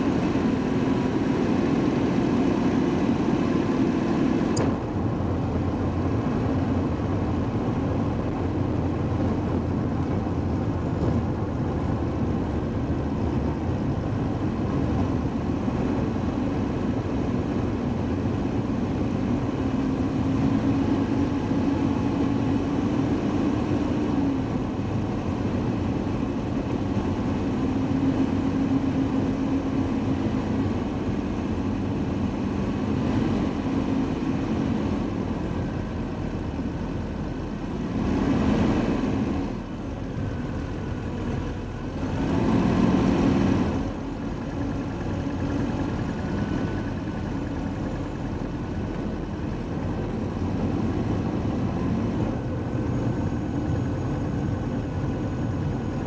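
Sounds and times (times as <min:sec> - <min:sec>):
car driving with road noise: 0:00.0 - 0:56.0.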